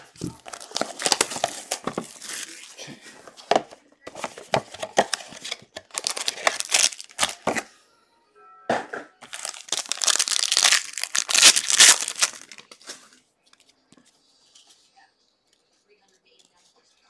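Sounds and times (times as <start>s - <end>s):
card pack wrappers crinkling: 0.0s - 2.8s, 4.1s - 7.7s, 9.2s - 13.7s.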